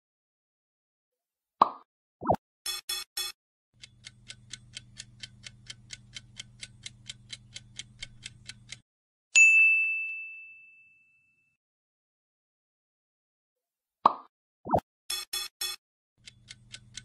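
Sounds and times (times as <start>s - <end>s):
clock-like ticks: 2.7s - 8.8s, 15.1s - 17.0s
bright ding chime: 9.4s - 11.6s.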